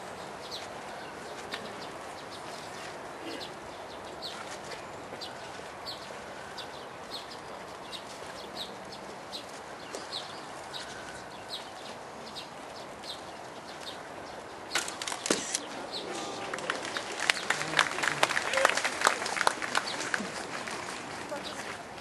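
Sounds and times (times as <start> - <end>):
murmur of outdoor crowd: 0.0 - 22.0
hand clapping: 16.2 - 20.5.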